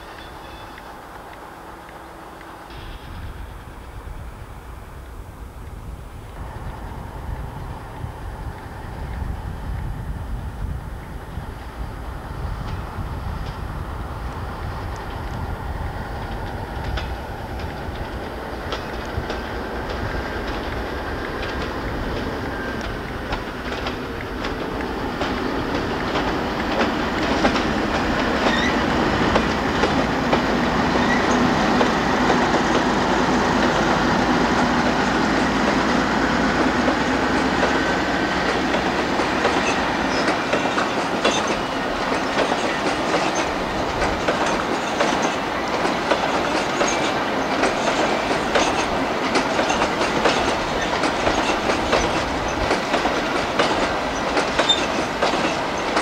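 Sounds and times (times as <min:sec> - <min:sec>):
diesel locomotive engine: 0:00.0 - 0:56.0
wheels clicking over rail joints: 0:12.4 - 0:56.0.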